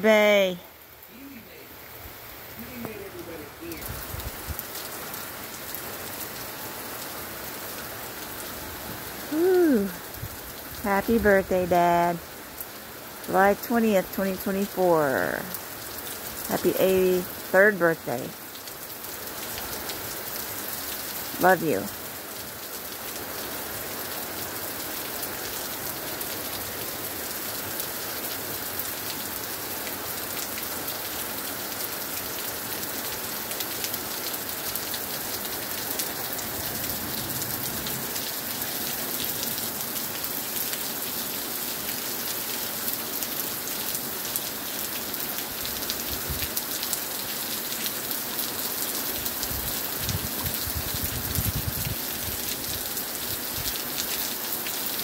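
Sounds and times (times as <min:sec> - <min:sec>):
rain falling on a lawn: 0:00.0 - 0:55.0
rain splashing on a patio: 0:00.0 - 0:55.0.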